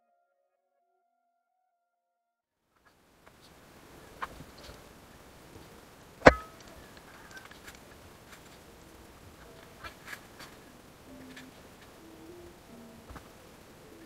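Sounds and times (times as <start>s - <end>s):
hands handling metal parts: 6.2s - 8.6s
sharp metallic knock ringing: 6.3s - 6.6s.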